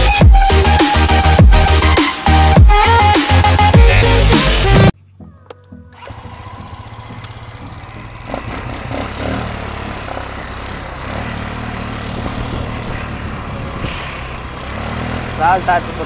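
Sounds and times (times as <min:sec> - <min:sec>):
quad bike engine running: 0:05.2 - 0:16.0.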